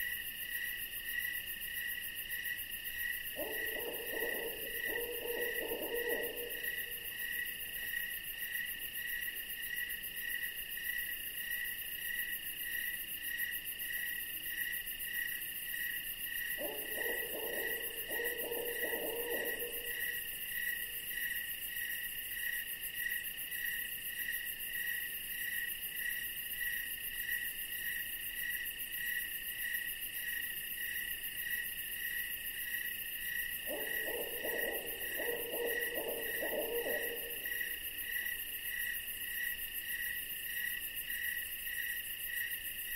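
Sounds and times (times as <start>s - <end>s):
owl hooting: 3.4s - 6.7s, 16.6s - 20.1s, 33.7s - 37.8s
crickets chirring: 16.6s - 21.5s, 30.3s - 42.9s.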